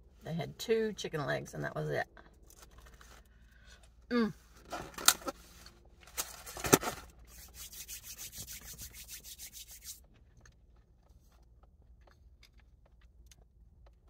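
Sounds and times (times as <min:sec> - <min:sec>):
hands rubbing together: 0:07.3 - 0:10.0.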